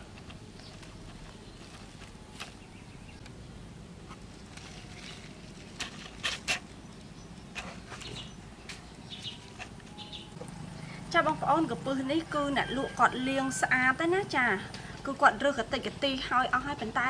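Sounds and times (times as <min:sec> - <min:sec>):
leaves rustling in hands: 0:00.0 - 0:03.3, 0:03.9 - 0:10.0
faint bird chirps: 0:06.8 - 0:11.1.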